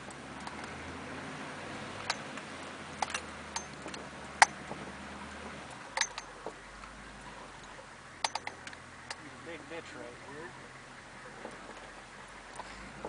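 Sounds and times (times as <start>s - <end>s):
diesel engine hum: 0.0s - 13.0s
sharp clicks and knocks: 2.0s - 4.8s, 5.4s - 6.9s, 7.6s - 9.3s.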